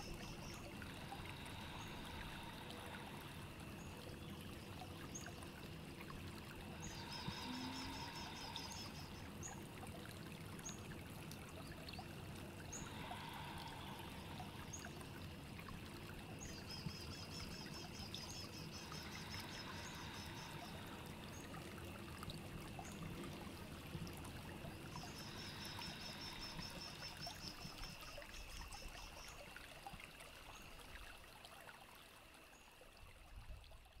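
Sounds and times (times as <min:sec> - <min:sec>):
running water: 0:00.0 - 0:34.0
faint bird chirps: 0:06.8 - 0:09.6.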